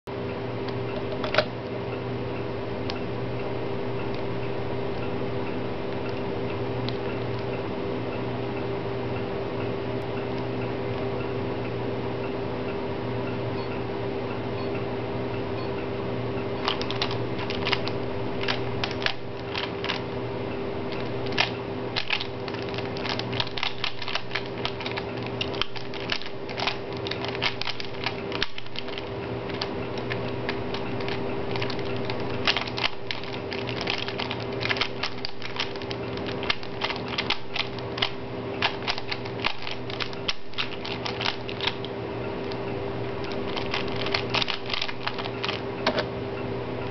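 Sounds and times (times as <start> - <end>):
steady low hum: 0.1 - 46.9
puzzle cube plastic clicks: 16.6 - 20.0, 20.9 - 42.6, 43.2 - 45.6.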